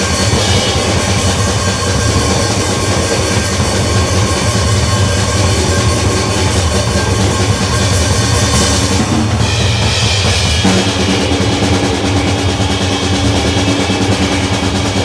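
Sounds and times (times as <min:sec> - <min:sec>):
heavy low rumble: 0:00.0 - 0:15.0
noise music: 0:10.6 - 0:15.0.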